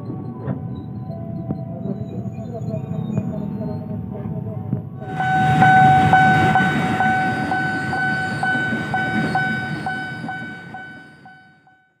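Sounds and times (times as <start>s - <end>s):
electric train rumbling past: 0.0s - 11.9s
level-crossing bell ringing: 5.0s - 12.0s.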